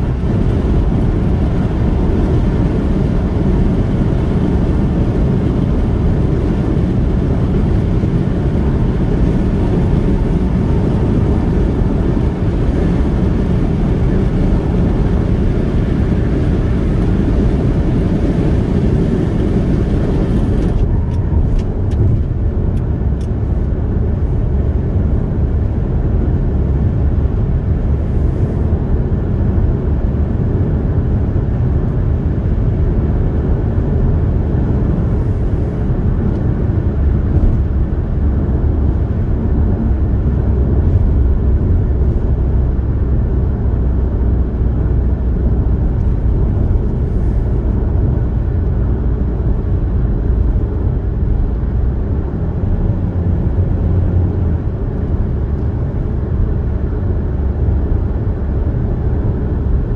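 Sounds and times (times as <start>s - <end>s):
car engine drone: 0.0s - 59.9s
tyre and road noise: 0.0s - 59.9s.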